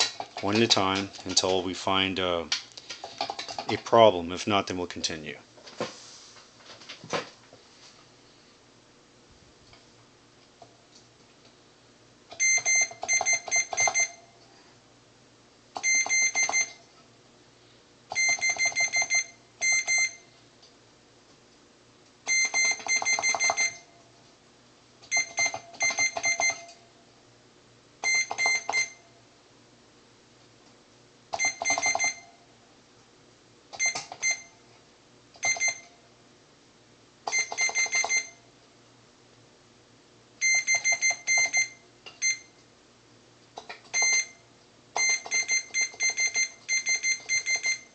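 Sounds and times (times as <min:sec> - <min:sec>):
multimeter continuity beeps: 0:12.3 - 0:14.3, 0:15.8 - 0:16.8, 0:18.1 - 0:20.3, 0:22.3 - 0:23.9, 0:25.1 - 0:26.8, 0:28.0 - 0:29.1, 0:31.4 - 0:32.4, 0:33.8 - 0:34.5, 0:35.4 - 0:36.0, 0:37.3 - 0:38.4, 0:40.4 - 0:42.6, 0:43.9 - 0:44.4, 0:45.0 - 0:47.9.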